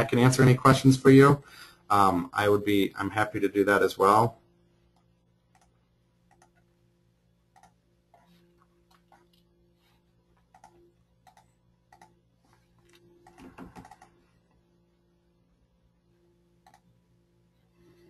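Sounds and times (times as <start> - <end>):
low steady hum: 0.0 - 18.0
computer keyboard and mouse clicks: 5.0 - 6.6, 7.5 - 8.3, 10.4 - 12.2, 12.8 - 14.2, 16.6 - 16.9.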